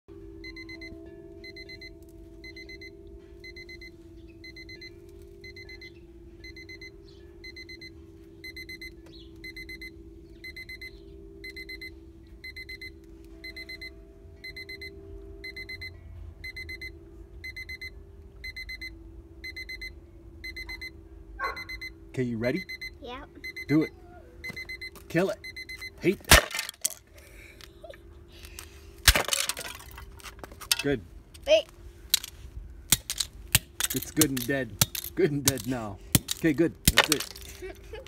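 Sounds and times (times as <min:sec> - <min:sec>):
alarm clock beeping: 0:00.1 - 0:26.2
steady low hum: 0:00.1 - 0:38.0.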